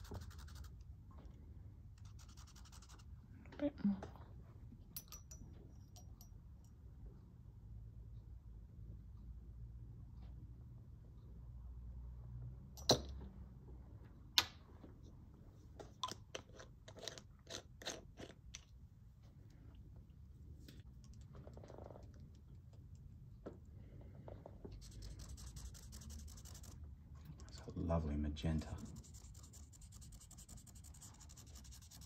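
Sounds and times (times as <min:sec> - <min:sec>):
cotton swab scratching on paper: 0:00.0 - 0:00.8, 0:02.0 - 0:03.1, 0:24.8 - 0:26.9, 0:28.6 - 0:32.0.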